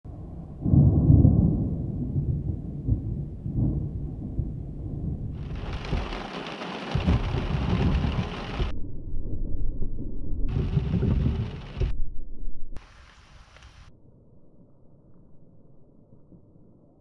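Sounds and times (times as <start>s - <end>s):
thunder rumbling: 0.1s - 13.9s
rain on car windshield: 5.4s - 8.7s, 10.5s - 11.9s
low rumbling: 6.9s - 17.0s.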